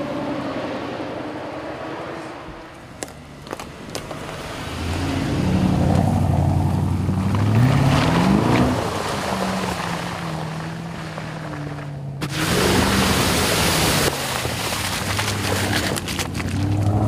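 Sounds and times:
car engine at low revs: 0:00.0 - 0:17.0
car splashing through water: 0:04.3 - 0:17.0.

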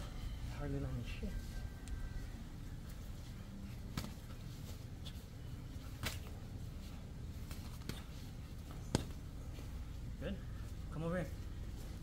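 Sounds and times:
low steady rumble: 0:00.0 - 0:12.0
boxing gloves smacking mitts: 0:03.7 - 0:09.8.

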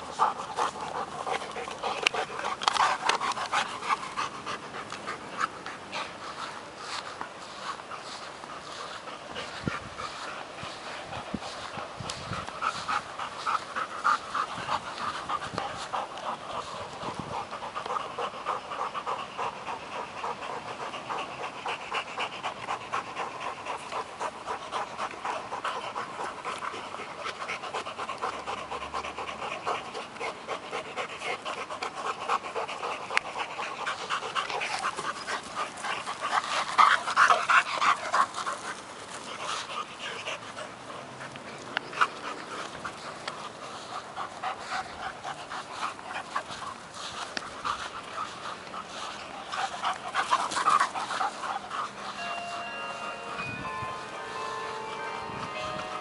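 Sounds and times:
dogs panting hard: 0:00.0 - 0:56.0.

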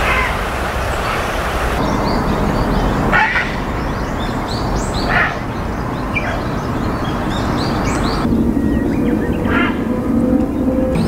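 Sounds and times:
heron croaking: 0:00.0 - 0:11.0
small birds chirping: 0:00.0 - 0:11.0.

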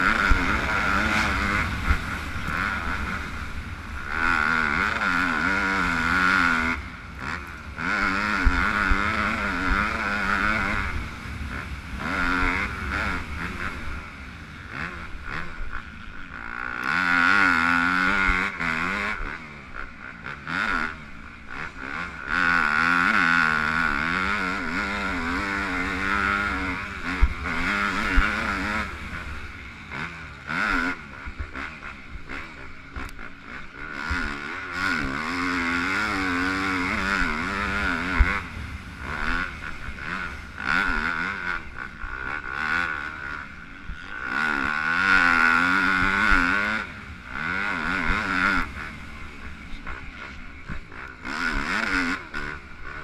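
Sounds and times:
wind rumble on microphone: 0:00.0 - 0:15.8
motocross engine revving: 0:00.0 - 0:53.0.

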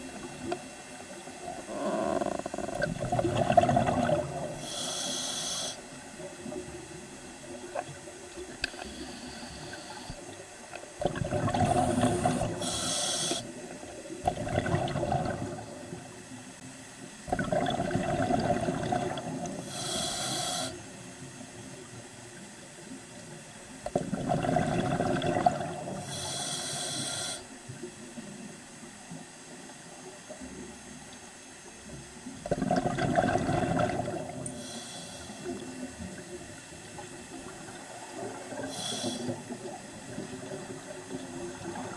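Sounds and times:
underwater background noise: 0:00.0 - 0:41.9
exhaled bubbles rushing: 0:02.9 - 0:04.5, 0:11.0 - 0:12.6, 0:14.2 - 0:15.7, 0:17.3 - 0:19.4, 0:23.9 - 0:26.0, 0:32.5 - 0:34.4
air hissing through regulator: 0:04.6 - 0:05.9, 0:11.6 - 0:13.5, 0:19.6 - 0:20.9, 0:26.0 - 0:27.5, 0:34.4 - 0:35.6, 0:38.6 - 0:39.5.

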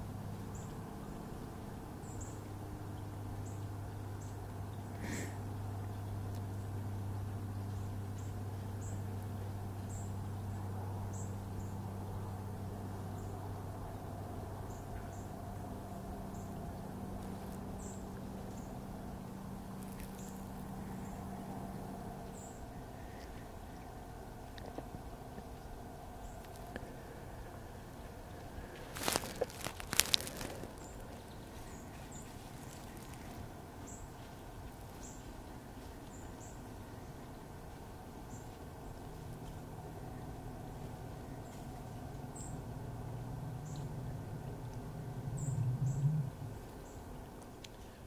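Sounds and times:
low steady hum: 0:00.0 - 0:48.0
outdoor background noise: 0:00.0 - 0:48.0
rustles in dry leaves: 0:19.6 - 0:21.4, 0:26.2 - 0:48.0
small bird chirping: 0:19.8 - 0:21.3, 0:28.9 - 0:35.4.

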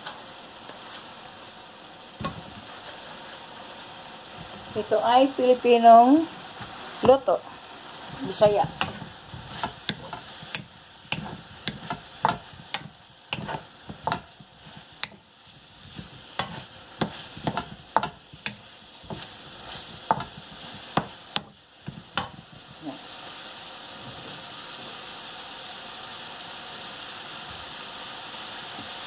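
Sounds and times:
food sizzling: 0:00.0 - 0:29.0
spatula scraping a metal wok: 0:08.2 - 0:22.6.

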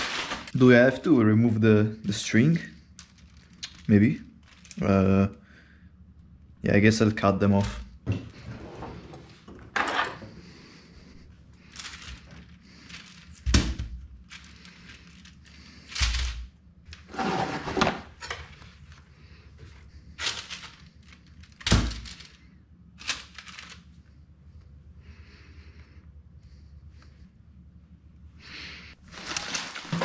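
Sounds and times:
paper towel tearing: 0:00.0 - 0:00.6.

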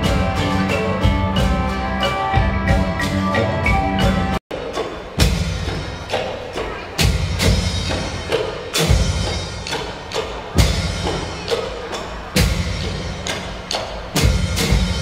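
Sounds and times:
wooden xylophone melody: 0:00.0 - 0:04.9
drum beat: 0:00.0 - 0:15.0.

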